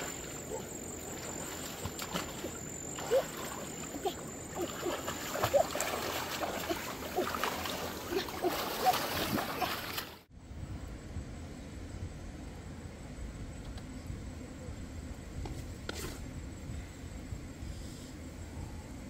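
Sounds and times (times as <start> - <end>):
hands splashing in muddy water: 0.0 - 10.2.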